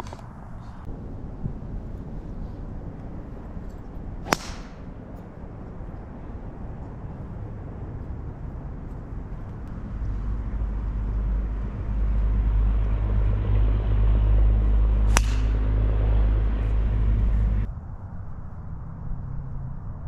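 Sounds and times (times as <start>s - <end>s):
low engine hum: 0.0s - 20.0s
golf club striking ball: 3.4s - 5.4s, 15.0s - 15.7s.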